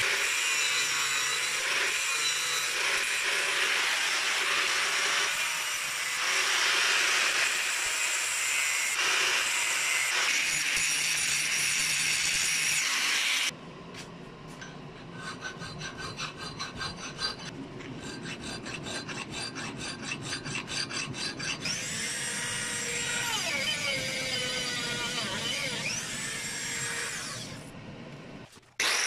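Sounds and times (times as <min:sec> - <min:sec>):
angle grinder cutting steel: 0:00.0 - 0:13.5, 0:15.1 - 0:27.7, 0:28.8 - 0:29.0
rotary tool grinding metal: 0:00.0 - 0:13.5, 0:15.0 - 0:27.7, 0:28.8 - 0:29.0
file rasping on metal: 0:15.0 - 0:26.0.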